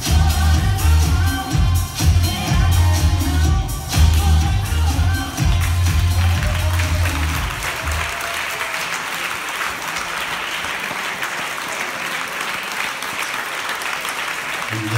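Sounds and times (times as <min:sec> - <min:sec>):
dance music bass beat: 0:00.0 - 0:08.0
audience applauding: 0:05.3 - 0:14.9.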